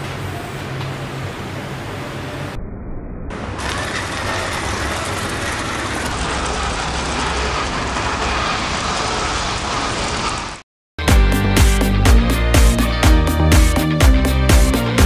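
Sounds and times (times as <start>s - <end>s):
blade scraping through sand: 3.6s - 10.6s.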